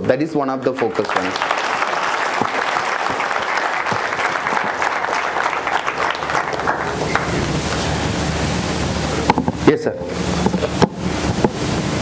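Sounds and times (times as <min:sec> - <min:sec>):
audience applauding: 0:00.6 - 0:08.1
low rushing noise: 0:00.8 - 0:12.0.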